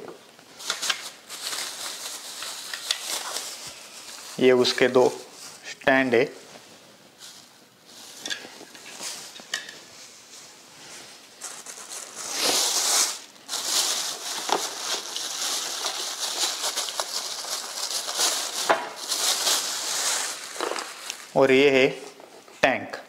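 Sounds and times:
plastic wrapping crinkling: 0.3 - 5.7, 6.4 - 22.6.

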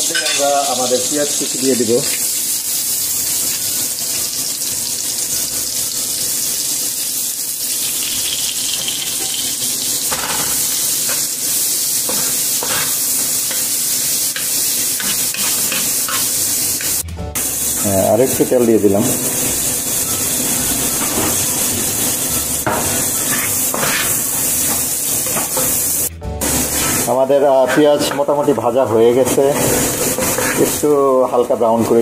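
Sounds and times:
onions sizzling in oil: 0.0 - 27.5, 28.1 - 32.0
wooden spatula scraping pan: 22.3 - 24.2, 29.0 - 30.8.

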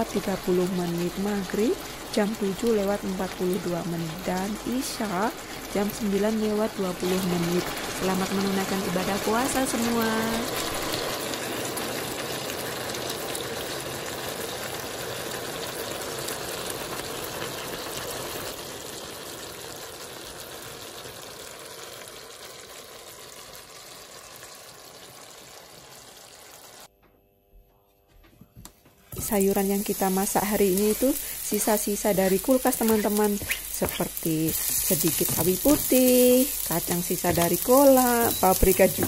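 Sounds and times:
sauce simmering and sizzling: 0.0 - 26.9, 29.1 - 39.0.

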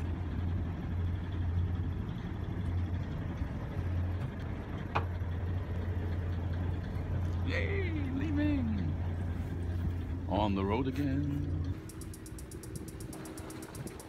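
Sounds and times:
boat diesel engine droning: 0.0 - 14.0.

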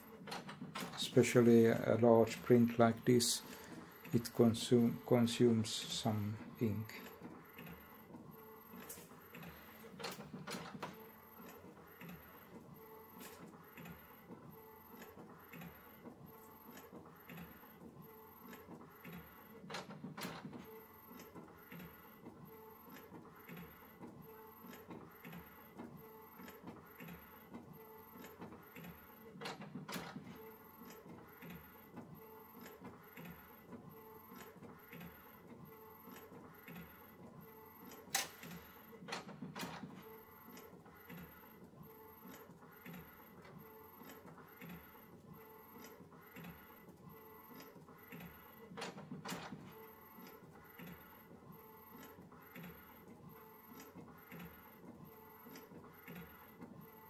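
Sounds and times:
printer clicking: 0.2 - 7.8, 9.4 - 12.3, 28.2 - 30.4, 37.9 - 40.0, 47.6 - 51.0.

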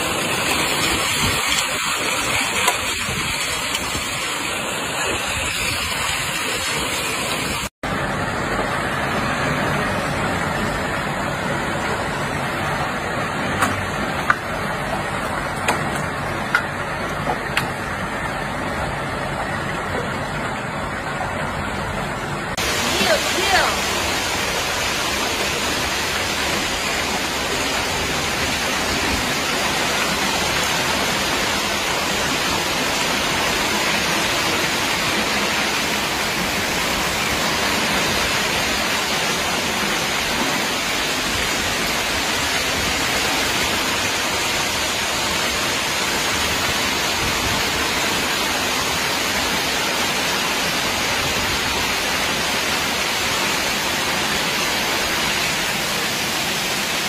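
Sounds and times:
hail and rain pelting: 0.0 - 7.7, 22.6 - 57.0.

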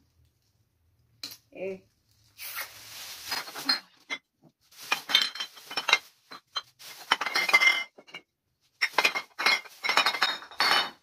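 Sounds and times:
glass bottles clinking: 3.3 - 11.0.

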